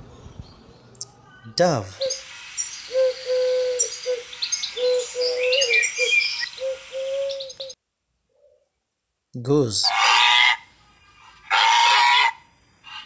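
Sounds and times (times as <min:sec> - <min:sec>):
small birds chirping: 0:00.0 - 0:08.8
dove cooing: 0:02.9 - 0:07.8.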